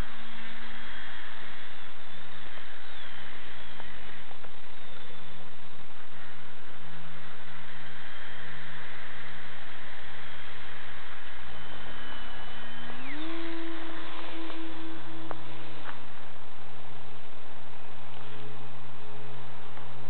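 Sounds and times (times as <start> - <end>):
electric motors whining: 0.0 - 18.5
steady hiss and hum: 0.0 - 20.0.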